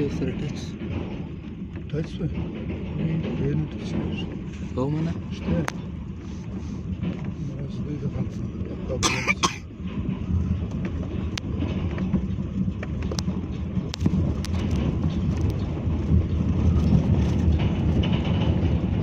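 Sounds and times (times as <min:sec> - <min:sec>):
sharp clicks and knocks: 0:00.0 - 0:08.8, 0:09.8 - 0:19.0
vehicle rumble on gravel: 0:09.7 - 0:19.0.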